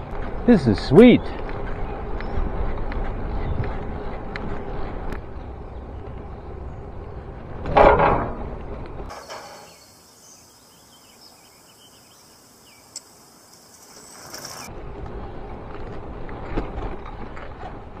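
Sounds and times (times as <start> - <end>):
bicycle tyre and wind noise: 0.0 - 7.7, 13.6 - 18.0
bicycle jolt onto steel deck: 7.6 - 8.5.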